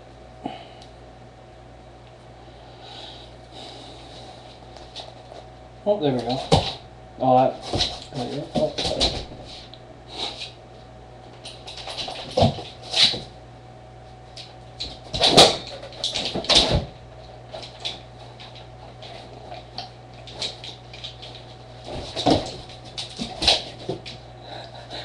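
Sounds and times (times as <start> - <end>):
steady low hum: 0.0 - 25.0
dog paws thumping and scrabbling: 4.8 - 6.9, 7.5 - 9.7, 11.3 - 13.4, 14.3 - 24.3.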